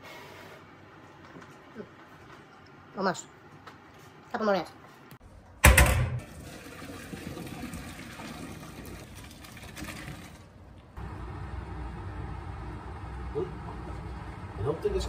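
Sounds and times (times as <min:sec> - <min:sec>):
water pouring into sink: 0:06.2 - 0:10.6.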